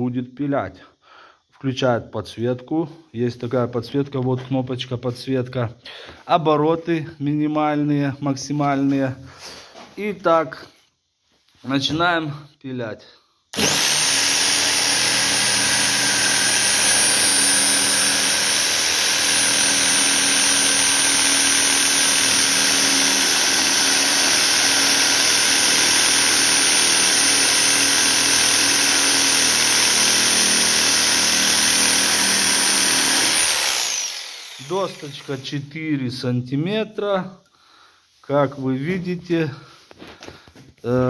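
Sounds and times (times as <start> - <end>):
electric jigsaw sawing wood: 13.5 - 35.5.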